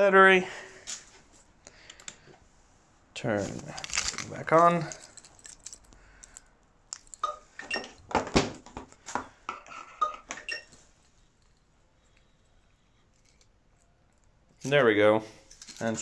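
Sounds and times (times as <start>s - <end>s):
sharp clicks and light clinks: 4.8s - 7.3s.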